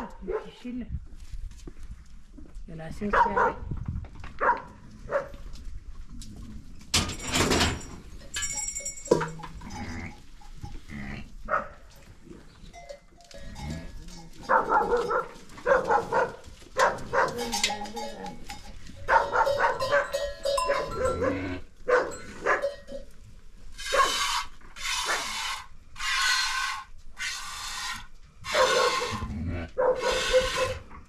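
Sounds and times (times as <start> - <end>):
goats and sheep bleating: 9.5 - 11.4, 12.6 - 14.7, 17.2 - 21.7.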